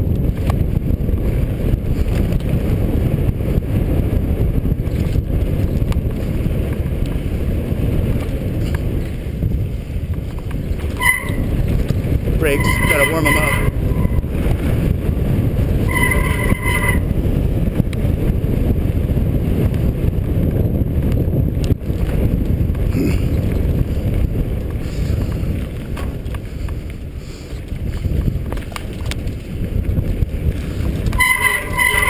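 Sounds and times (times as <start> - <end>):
bike tyre rumble: 0.0 - 32.0
wind on microphone: 0.0 - 32.0
disc brake squealing: 11.0 - 11.5, 12.4 - 14.2, 15.9 - 17.0, 31.2 - 32.0.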